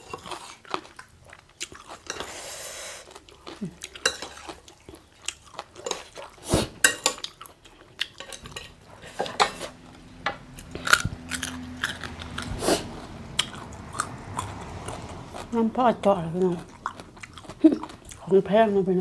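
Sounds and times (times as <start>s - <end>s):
chewing: 0.0s - 15.6s, 16.2s - 18.4s
fork and chopsticks scraping plate: 2.1s - 2.8s, 8.2s - 10.0s.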